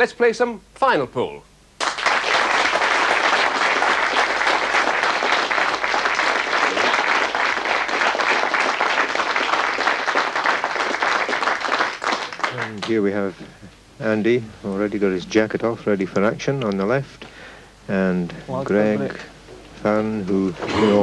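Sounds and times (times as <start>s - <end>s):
audience applauding: 1.8s - 13.1s.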